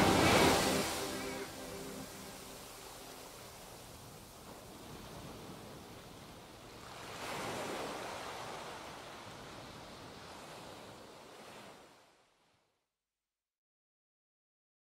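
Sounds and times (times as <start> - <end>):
soft rushing noise: 0.0 - 5.6.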